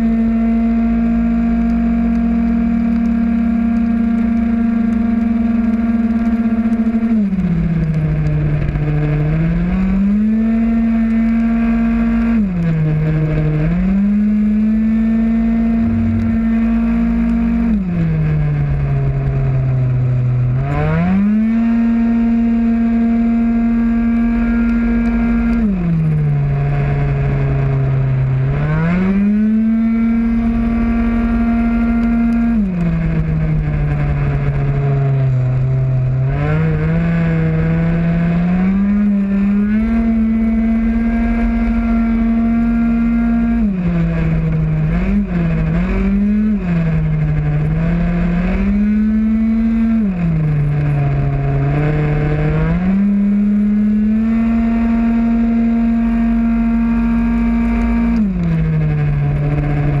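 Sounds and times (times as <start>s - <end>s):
scooter engine at full throttle: 0.0s - 60.0s.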